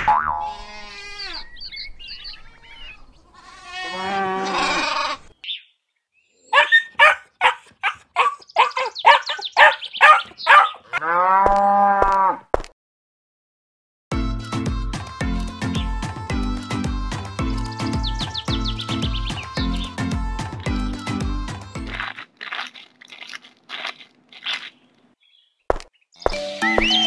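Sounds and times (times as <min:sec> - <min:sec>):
cattle mooing: 0:03.6 - 0:05.0, 0:10.5 - 0:12.4
music: 0:14.1 - 0:22.0, 0:26.3 - 0:27.0.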